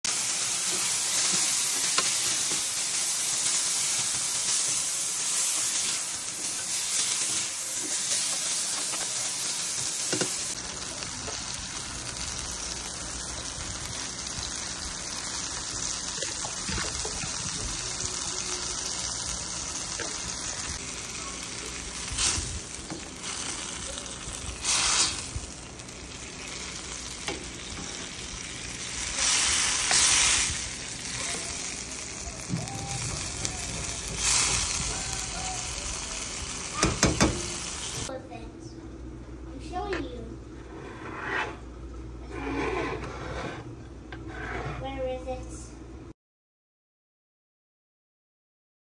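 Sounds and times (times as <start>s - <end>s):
vegetables sizzling in a skillet: 0.1s - 38.2s
spatula scraping skillet: 40.7s - 45.0s.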